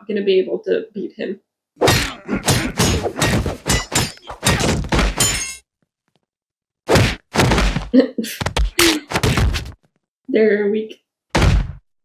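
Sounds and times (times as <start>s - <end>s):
cartoon punches and thuds: 1.8s - 5.5s, 6.9s - 9.8s, 11.3s - 11.9s.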